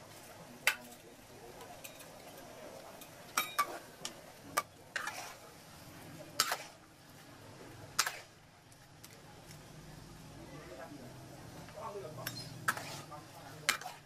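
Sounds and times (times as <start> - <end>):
metal spatula scraping a pan: 4.9 - 5.6, 6.3 - 6.8, 7.9 - 8.4, 12.2 - 14.0.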